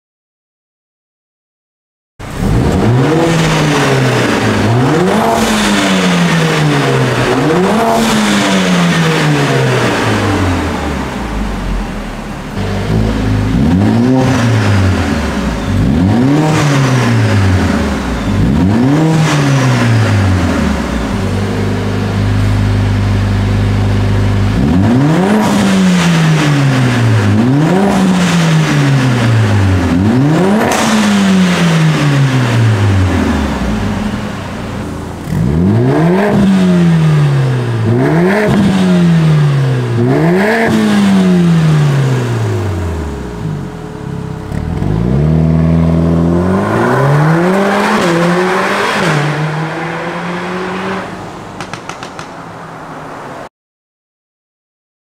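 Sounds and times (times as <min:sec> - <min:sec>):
car engine idling: 0:02.2 - 0:24.8, 0:32.4 - 0:35.6, 0:41.3 - 0:46.4, 0:51.1 - 0:53.1
car engine revving: 0:02.2 - 0:53.5.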